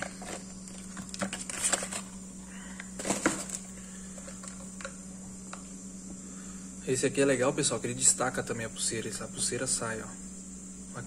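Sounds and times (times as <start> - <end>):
cardboard packaging rustling: 0.0 - 2.2, 2.9 - 4.7.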